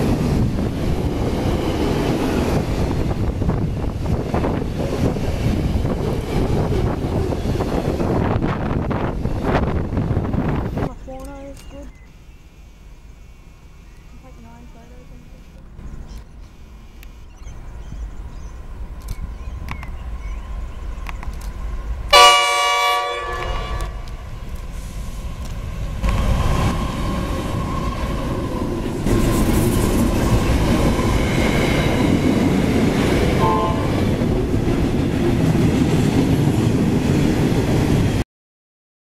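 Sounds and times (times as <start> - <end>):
locomotive engines and wheels passing: 0.0 - 22.6, 23.4 - 38.2
locomotive horn blast: 22.1 - 24.2, 33.4 - 34.2.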